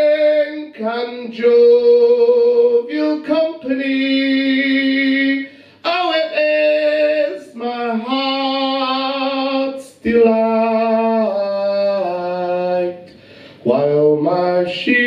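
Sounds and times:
man singing unaccompanied: 0.0 - 15.0
man breathing: 5.5 - 5.8, 13.0 - 13.7.

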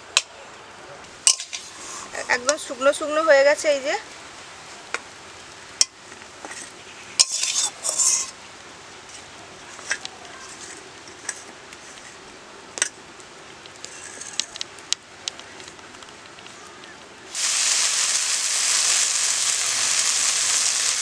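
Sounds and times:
spatula scraping metal bowl: 7.2 - 8.3.

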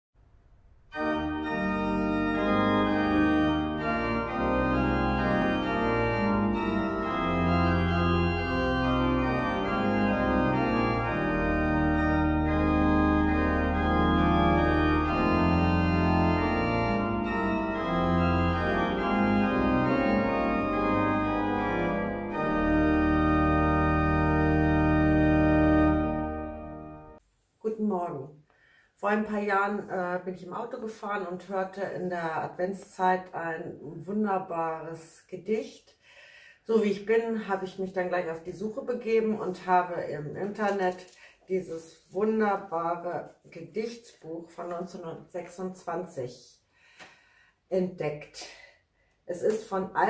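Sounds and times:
organ playing sustained chords: 0.9 - 27.2.

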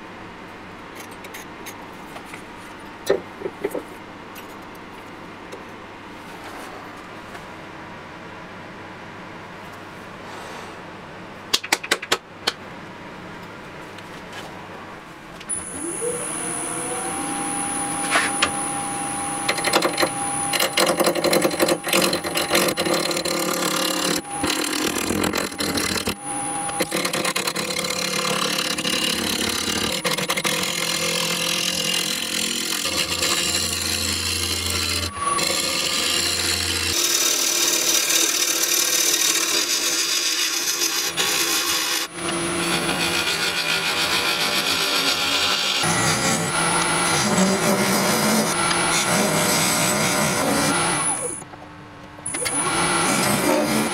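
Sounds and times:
wood lathe whine: 15.5 - 51.4, 52.3 - 53.9
gouge cutting wood: 16.2 - 51.4, 52.4 - 53.9.

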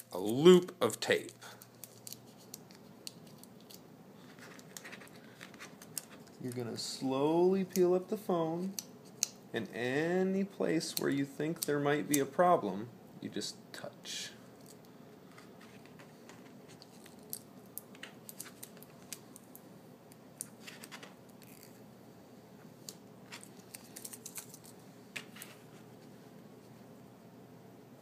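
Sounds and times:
tape clicks and crackles: 0.0 - 6.8, 7.6 - 8.0, 8.6 - 9.4, 14.6 - 21.8, 22.8 - 25.6
fingertips on plastic screen protector: 1.6 - 6.6.

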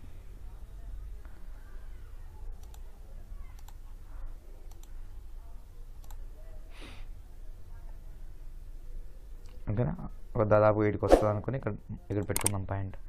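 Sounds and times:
low steady hum: 0.0 - 13.0
computer mouse clicking: 2.6 - 2.9, 3.6 - 3.8, 4.6 - 5.0, 6.0 - 6.2.

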